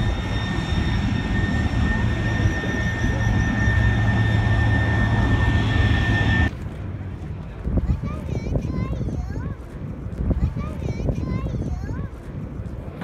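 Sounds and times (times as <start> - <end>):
jet turbine engine running: 0.0 - 7.1.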